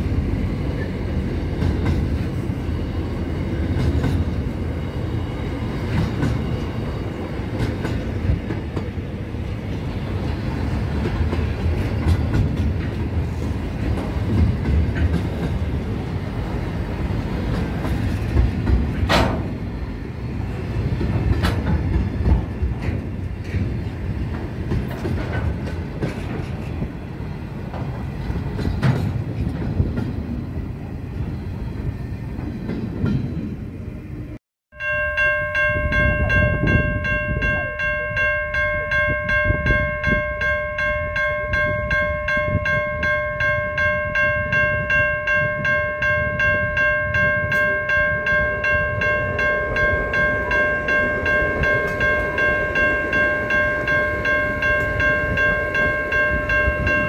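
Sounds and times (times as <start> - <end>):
train wheels rumbling and clattering: 0.0 - 33.9
level crossing bell ringing: 34.7 - 57.0.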